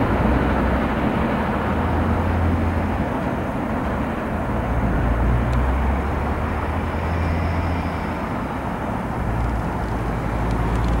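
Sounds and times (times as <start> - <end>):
freight train rumbling on rails: 0.0 - 11.0.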